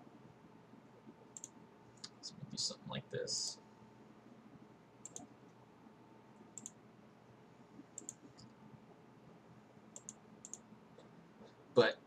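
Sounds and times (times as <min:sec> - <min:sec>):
computer mouse clicking: 0:01.3 - 0:02.2, 0:05.0 - 0:05.4, 0:06.6 - 0:06.8, 0:07.8 - 0:08.6, 0:09.9 - 0:11.1.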